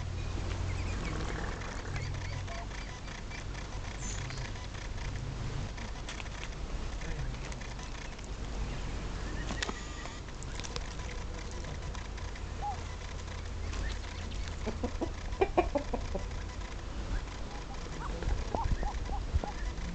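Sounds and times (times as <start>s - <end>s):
duck soft calls: 9.2s - 19.9s.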